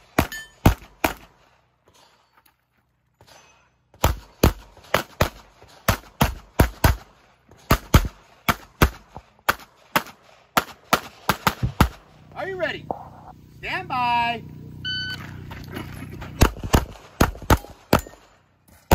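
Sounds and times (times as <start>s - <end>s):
pistol shots: 0.0s - 1.5s, 3.9s - 12.0s, 16.4s - 18.9s.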